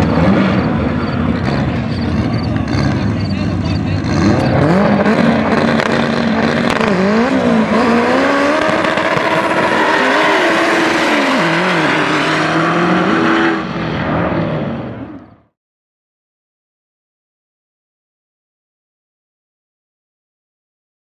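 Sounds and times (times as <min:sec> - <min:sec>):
drag racing cars accelerating: 0:00.0 - 0:15.4.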